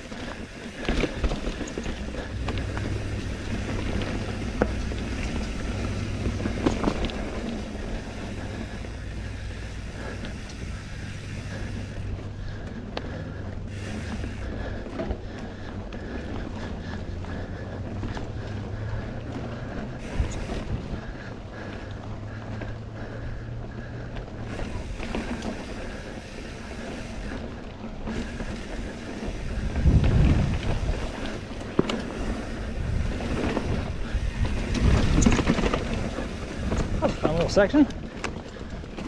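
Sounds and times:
bike knocks and rattles: 0.0s - 16.7s, 26.9s - 39.0s
wind buffeting microphone: 0.0s - 19.3s, 28.3s - 39.0s
rumble of bike tyres: 0.0s - 39.0s.

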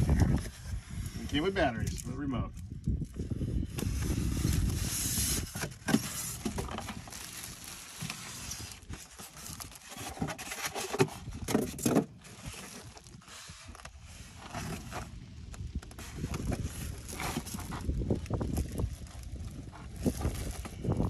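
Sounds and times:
foam blocks rubbing and creaking: 0.0s - 21.0s
plastic bag crinkling: 4.1s - 21.0s
low rumble: 12.2s - 21.0s.

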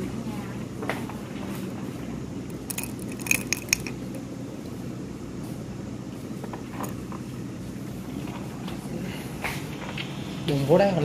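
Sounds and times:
low mechanical hum: 0.0s - 11.0s
faint clatter: 0.8s - 4.2s.

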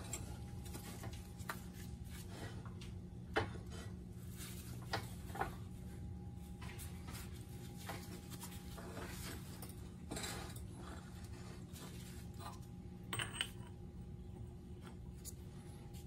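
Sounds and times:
metal clinks and scrapes: 0.0s - 0.9s, 8.2s - 13.8s
steady low hum: 0.0s - 16.0s.

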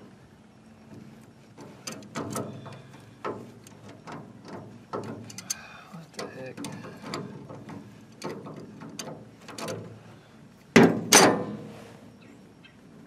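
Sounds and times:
loud metallic clanks: 10.8s - 11.7s.

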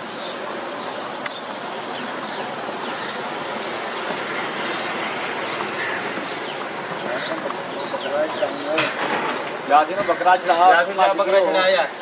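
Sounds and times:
street noise: 0.0s - 12.0s.

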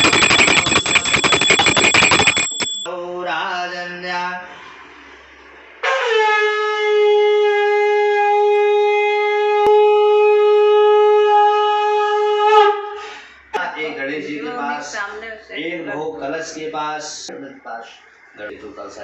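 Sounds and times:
conch shell blown: 5.8s - 12.8s.

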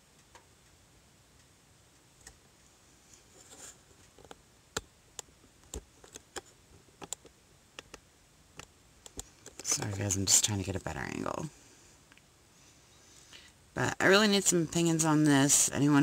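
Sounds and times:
faint sharp clicks and ticks: 0.0s - 10.4s, 12.0s - 12.3s
low steady hiss: 0.0s - 16.0s.

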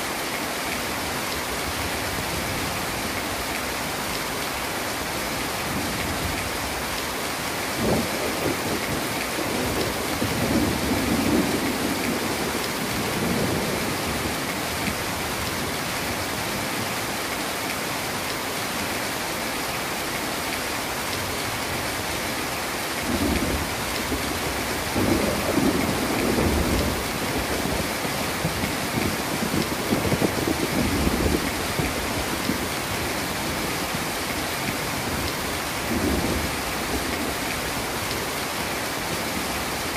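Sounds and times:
heavy rain: 0.0s - 39.9s
thunder rumbling: 23.0s - 34.0s.

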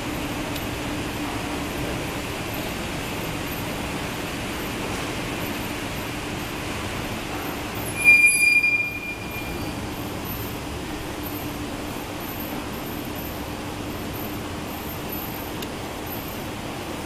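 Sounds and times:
elevator cab humming: 0.0s - 17.0s
high-pitched squeal: 7.8s - 10.6s.

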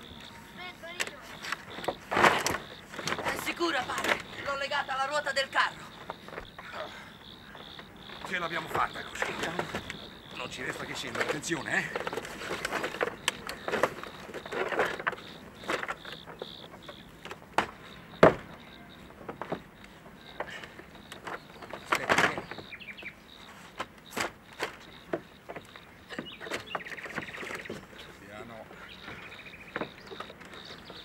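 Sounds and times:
scraping on wooden planks: 1.0s - 4.6s, 5.9s - 28.2s
rope rustling: 7.6s - 16.6s
knocks on wooden roof: 7.6s - 22.8s, 28.9s - 31.0s.

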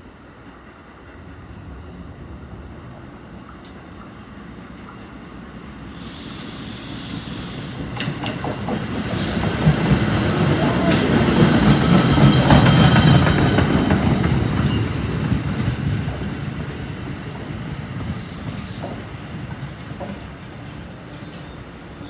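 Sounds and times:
train wheels rumbling on rails: 0.0s - 22.0s
high brake squeal: 14.6s - 22.0s.

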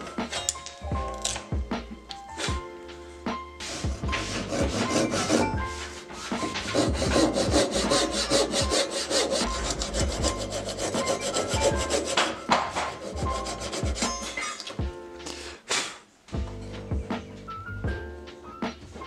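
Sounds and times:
handsaw cutting wood: 3.6s - 14.4s.

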